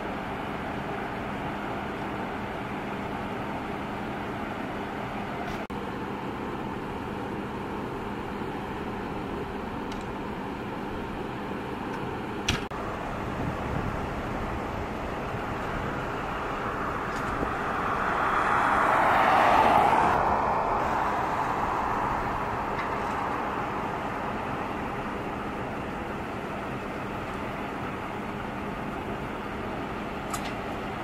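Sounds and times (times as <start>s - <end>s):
road noise hum: 0.0s - 31.0s
vehicle driving past: 12.9s - 25.1s.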